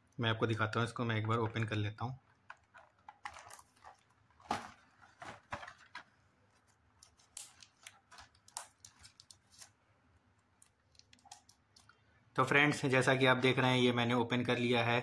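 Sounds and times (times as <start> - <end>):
plastic wrap crinkling: 1.3 - 11.9.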